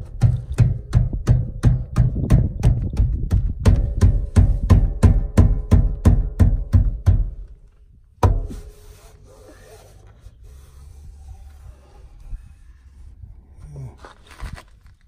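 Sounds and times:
fist thumping subwoofer grille: 0:00.0 - 0:07.6, 0:08.2 - 0:08.8.

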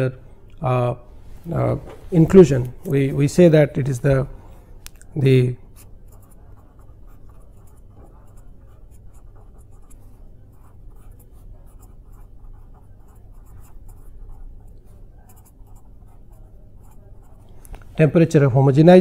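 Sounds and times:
low steady hum: 0:00.0 - 0:19.0
pen scratching on paper: 0:05.7 - 0:17.5.

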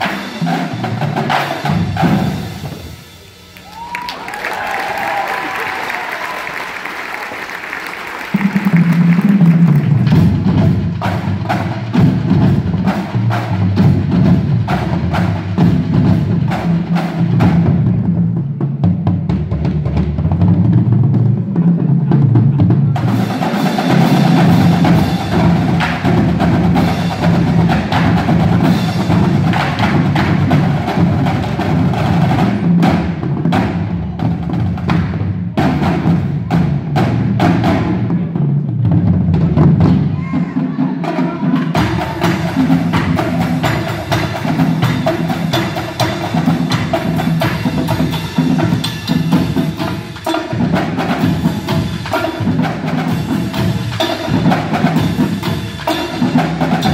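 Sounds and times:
snare drums: 0:00.0 - 0:56.9.

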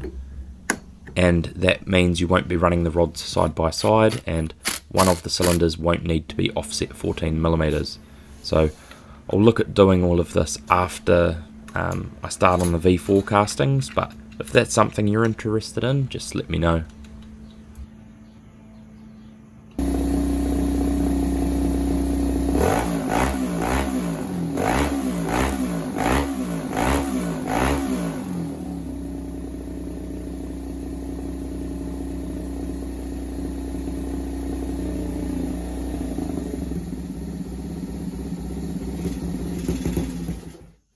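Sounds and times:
motorcycle engine revving and idling: 0:19.8 - 0:40.9.

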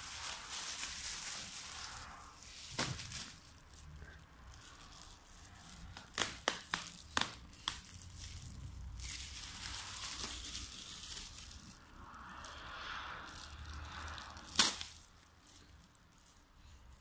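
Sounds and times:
plastic film crinkling: 0:00.0 - 0:17.0
sharp crackles of film: 0:00.0 - 0:17.0
steady rustle of film: 0:00.0 - 0:17.0.

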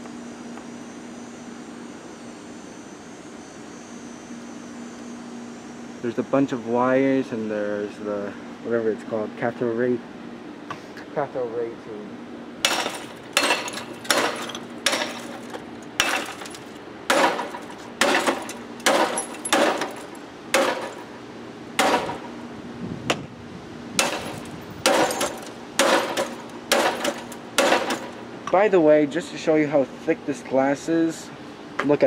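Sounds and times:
bat hitting monitor: 0:21.8 - 0:22.4.

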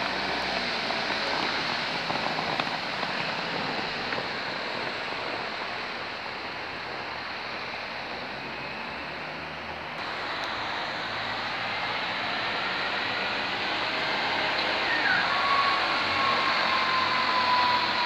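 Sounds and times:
bus diesel engine pulling away: 0:00.0 - 0:18.0
tyres hissing on wet road: 0:00.0 - 0:18.0.

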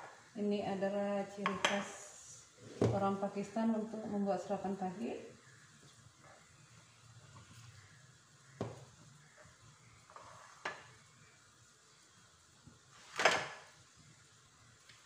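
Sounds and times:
dishes knocking on countertop: 0:08.6 - 0:08.9.

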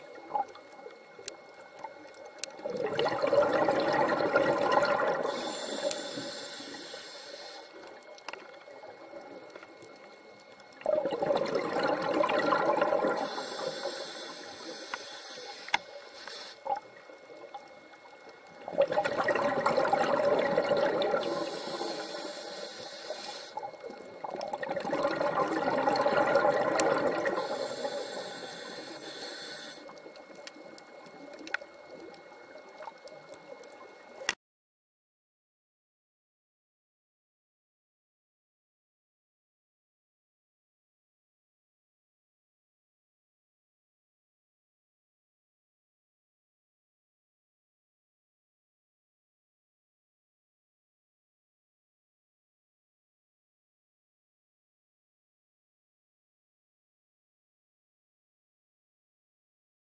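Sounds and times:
bubbling exhalation: 0:02.7 - 0:05.6, 0:10.9 - 0:13.4, 0:18.7 - 0:21.9, 0:24.2 - 0:27.9
regulator hissing on inhalation: 0:05.2 - 0:07.8, 0:13.0 - 0:16.8, 0:21.0 - 0:23.7, 0:27.2 - 0:29.9.

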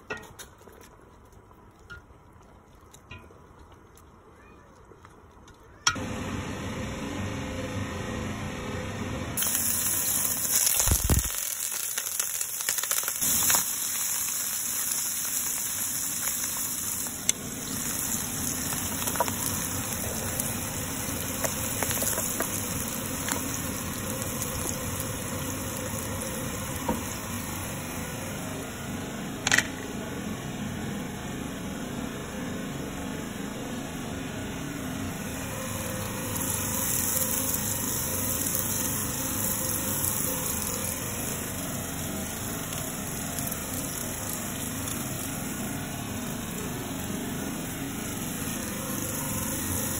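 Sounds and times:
food sizzling in a frying pan: 0:09.4 - 0:28.4, 0:35.3 - 0:49.9.

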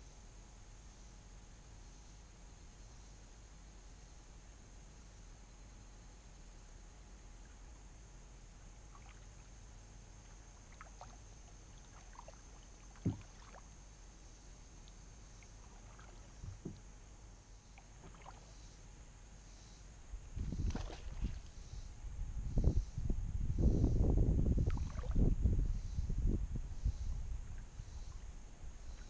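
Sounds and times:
paddle water dripping and splashing: 0:10.6 - 0:13.8, 0:14.8 - 0:16.9, 0:17.8 - 0:18.5, 0:20.6 - 0:21.5.

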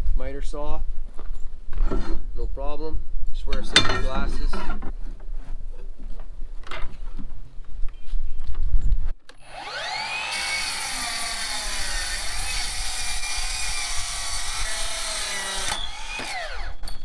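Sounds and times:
mitre saw motor whine: 0:09.4 - 0:17.0
saw screeching through metal: 0:09.4 - 0:17.0.

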